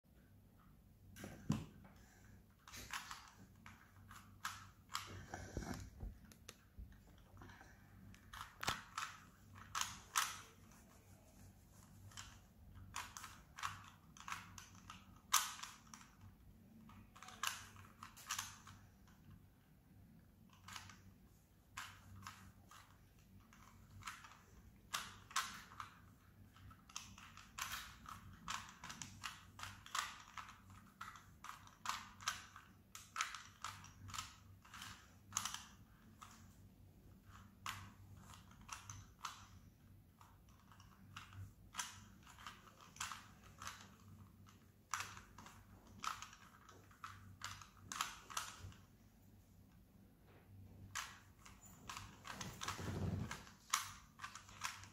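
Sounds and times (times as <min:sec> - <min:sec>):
puzzle cube clicking as turned: 0:02.6 - 0:10.7, 0:11.8 - 0:19.4, 0:20.4 - 0:21.1, 0:21.7 - 0:36.6, 0:37.2 - 0:39.6, 0:40.2 - 0:48.9, 0:50.9 - 0:54.9.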